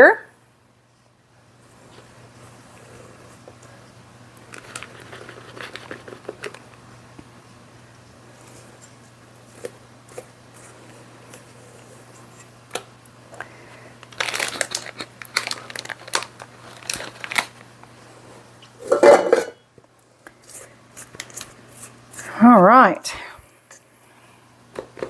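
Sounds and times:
faint steady hum: 0.0 - 25.0
plastic bag crinkling: 4.4 - 6.7, 14.0 - 17.8.

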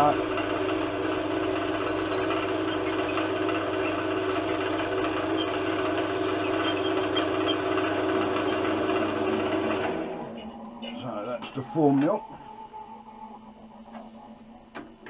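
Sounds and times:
wood lathe running: 0.1 - 10.1
faint high squeal: 1.8 - 7.6
drill boring into wood: 1.8 - 7.9.

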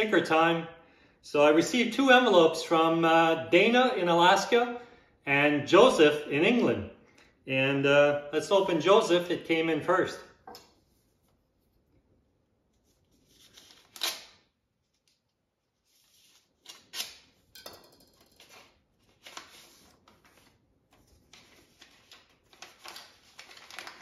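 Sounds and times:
paper rustling: 12.8 - 15.2, 18.6 - 24.0
envelope ripped open with knife: 13.3 - 14.5.

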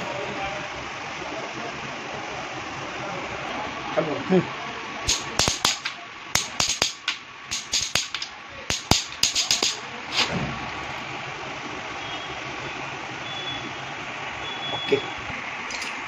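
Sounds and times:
socket ratchet clicking: 5.1 - 9.8.

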